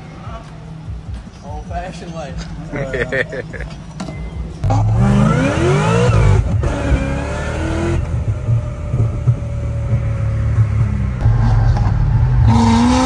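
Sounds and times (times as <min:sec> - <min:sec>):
car engine at full throttle: 0:04.5 - 0:13.0.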